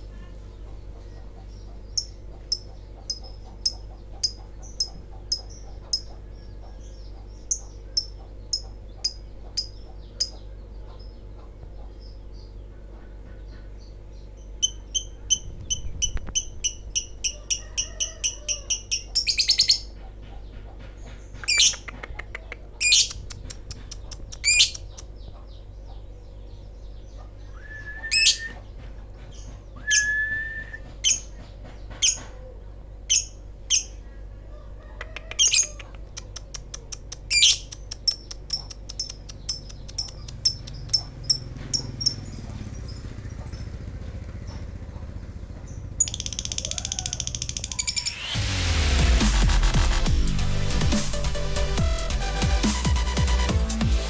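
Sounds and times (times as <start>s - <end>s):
lovebird chirping: 0.6s - 11.2s, 13.9s - 19.9s, 35.3s - 43.7s.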